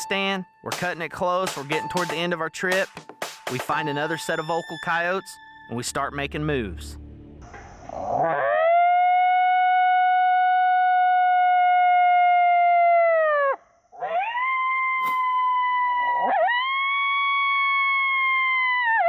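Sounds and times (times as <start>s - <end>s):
coyote howler call: 8.0s - 19.0s.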